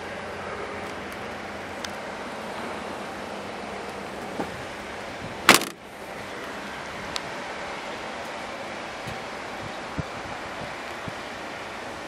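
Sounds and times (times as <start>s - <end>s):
outdoor background noise: 0.0s - 12.0s
tailgate slamming: 4.2s - 4.8s, 5.4s - 5.9s.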